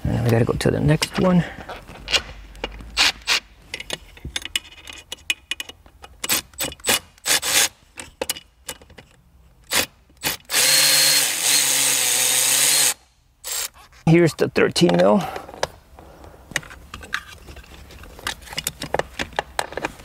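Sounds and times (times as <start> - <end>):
cordless power tool whirring: 10.4 - 13.7.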